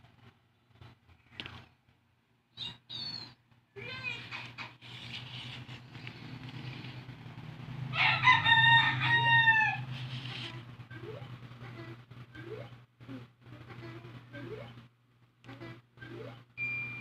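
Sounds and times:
rooster crowing: 7.8 - 10.0.

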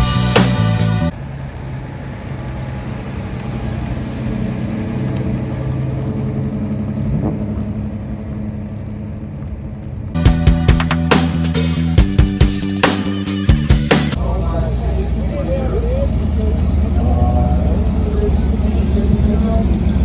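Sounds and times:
loud rock music: 0.0 - 1.1, 10.2 - 14.2
pickup truck engine running: 0.0 - 20.0.

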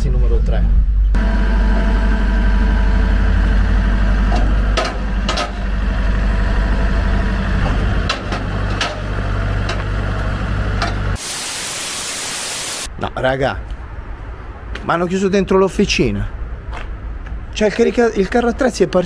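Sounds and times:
engine idling: 1.2 - 11.2.

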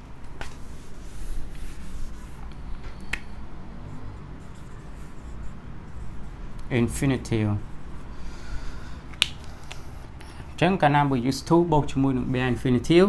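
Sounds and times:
marker scratching on whiteboard: 0.4 - 3.0, 3.6 - 10.6.

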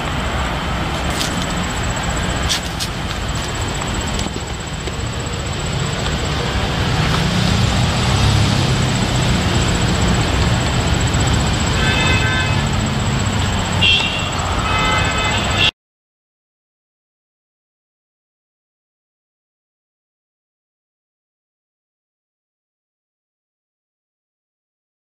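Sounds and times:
road traffic rumble: 0.0 - 15.7.

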